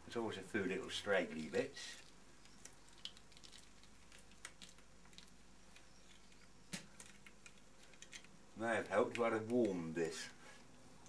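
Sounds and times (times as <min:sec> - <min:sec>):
faint clicks and crackles: 0:01.3 - 0:09.9.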